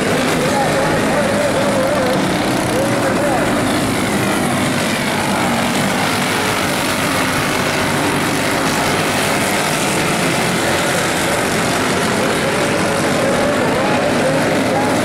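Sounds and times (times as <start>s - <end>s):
kart engines buzzing: 0.0s - 15.0s.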